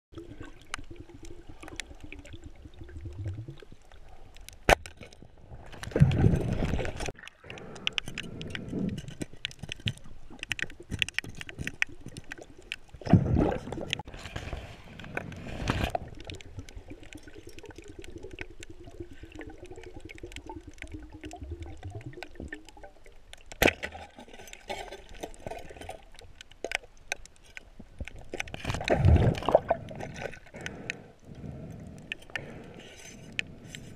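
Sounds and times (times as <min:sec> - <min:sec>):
bubbling water swishes: 0:00.1 - 0:33.9
faint underwater crackle: 0:00.1 - 0:33.9.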